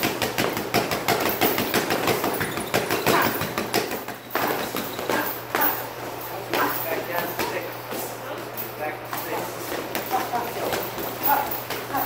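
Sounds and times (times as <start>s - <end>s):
boxing gloves slapping focus mitts: 0.0s - 5.8s
steady low hum: 0.0s - 12.0s.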